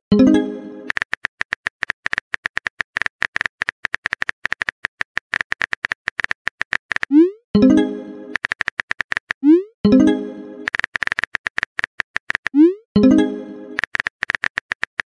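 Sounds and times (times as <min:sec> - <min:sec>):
phone keyboard typing clicks: 0:00.8 - 0:07.2, 0:08.3 - 0:09.5, 0:10.6 - 0:12.6, 0:13.7 - 0:15.0.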